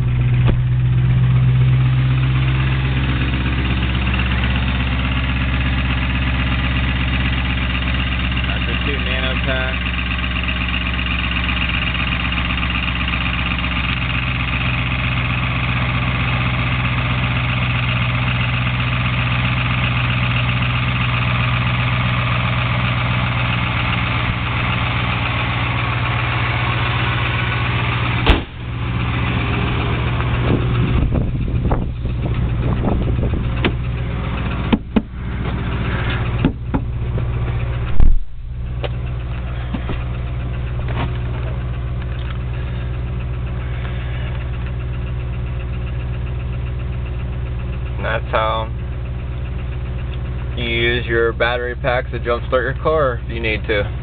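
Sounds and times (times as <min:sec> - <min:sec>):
heavy thump: 0:00.0 - 0:00.9, 0:28.2 - 0:28.7, 0:30.4 - 0:33.8, 0:34.7 - 0:39.0, 0:39.7 - 0:40.1
pickup engine idling: 0:00.0 - 0:54.0
clunks and knocks: 0:00.3 - 0:00.9, 0:28.2 - 0:28.7, 0:30.4 - 0:42.4.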